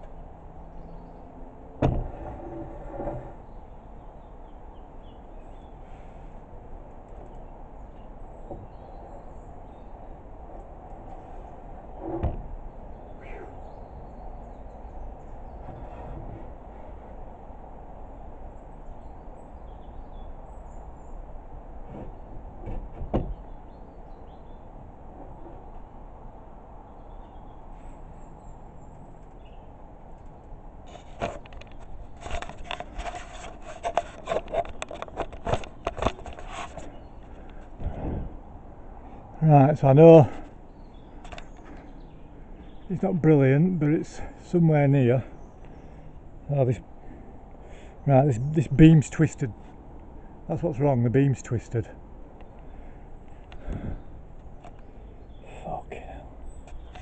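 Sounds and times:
rubbing and scraping on timber: 1.8 - 3.5, 11.1 - 12.6, 15.6 - 17.0, 21.8 - 23.4, 30.8 - 38.4
low background rumble: 35.1 - 57.0.

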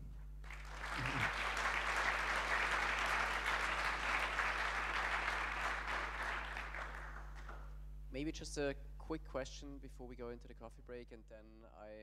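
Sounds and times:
audience applauding: 0.4 - 7.6.

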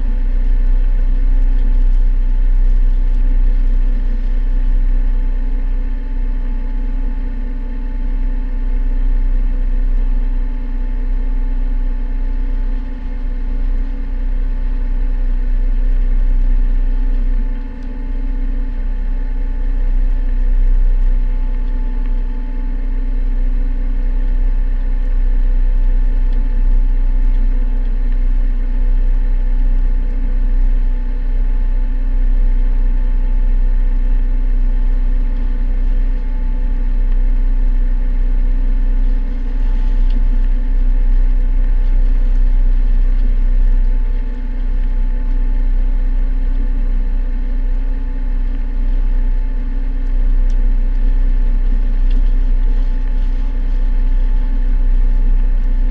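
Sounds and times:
boat engine droning: 50.8 - 55.8.

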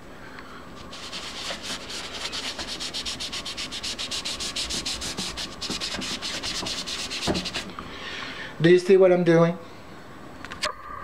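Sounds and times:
cotton ball rubbing on paper: 0.8 - 7.7.

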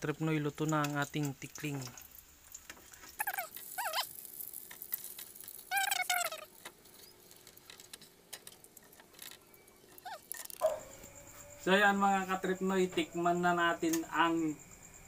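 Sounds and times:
dog whimpering: 10.0 - 10.8.

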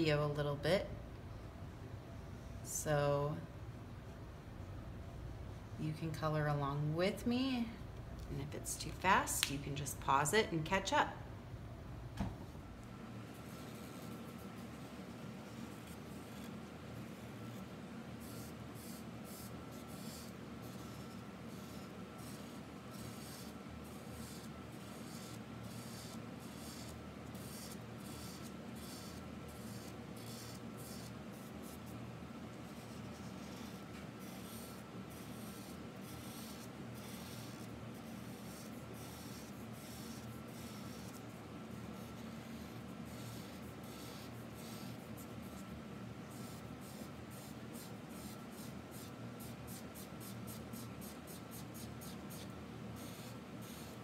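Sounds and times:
faint steady hum: 0.0 - 54.0
marker scribbling on paper: 18.2 - 31.9, 32.7 - 45.7, 46.3 - 54.0.

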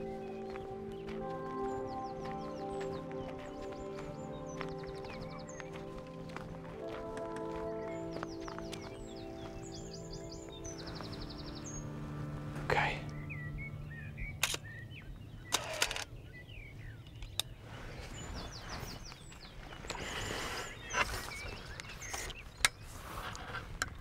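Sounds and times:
small birds chirping: 0.0 - 24.0
sharp clicks: 14.3 - 14.7, 15.5 - 16.1, 17.2 - 17.6.

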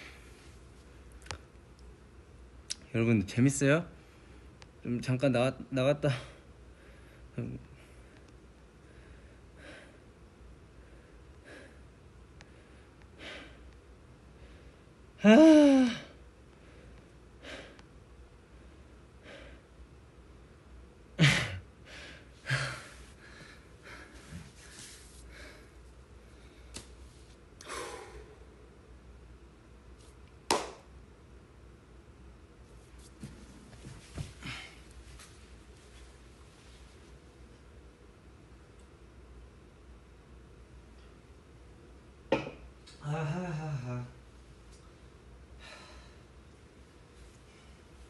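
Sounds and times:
man breathing slowly: 6.3 - 10.1, 10.7 - 15.0, 15.6 - 17.9, 18.5 - 19.7, 21.8 - 26.7, 45.5 - 46.4
man sighing: 15.2 - 16.2, 43.0 - 44.2
person exhaling heavily: 15.2 - 16.2, 27.6 - 28.5
hand clap: 30.5 - 30.9.

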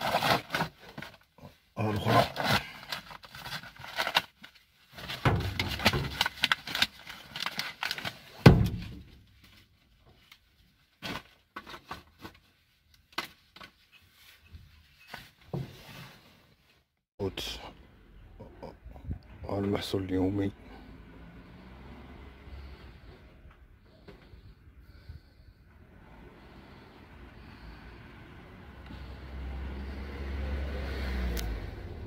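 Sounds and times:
rubbish rustling and clattering: 0.0 - 16.7
heavy thump: 8.4 - 9.1.

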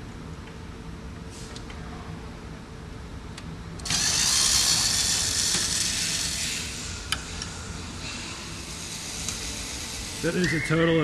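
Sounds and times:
power tool running: 3.8 - 10.5.

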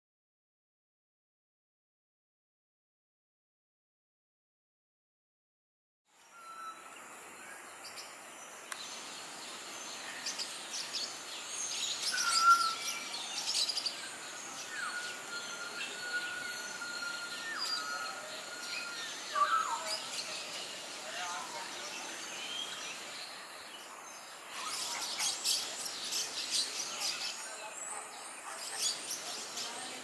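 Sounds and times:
background hiss: 6.1 - 27.6
long level bird whistle: 6.2 - 7.6, 11.7 - 20.5
birds chirping and whistling: 9.5 - 30.0.

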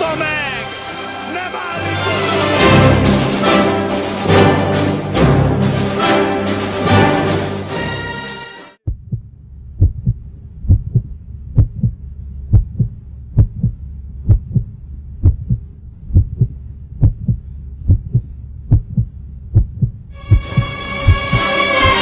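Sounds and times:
heartbeat thumps: 8.8 - 21.6
low hum: 8.8 - 22.0.

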